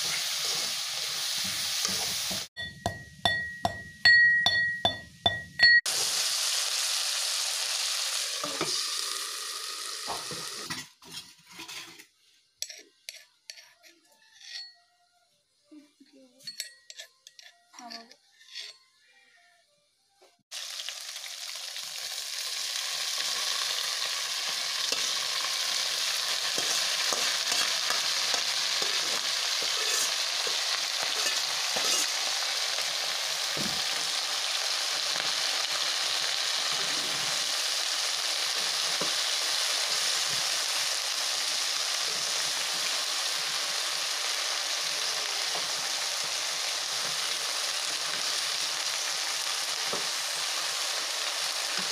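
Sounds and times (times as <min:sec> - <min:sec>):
vegetables sizzling in a wok: 0:00.0 - 0:03.2, 0:05.9 - 0:12.4, 0:20.5 - 0:51.9
metal spatula knocks: 0:02.6 - 0:05.8.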